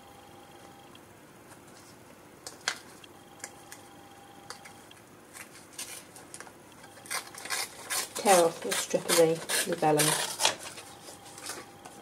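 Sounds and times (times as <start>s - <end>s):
paper crinkling: 5.3s - 12.0s.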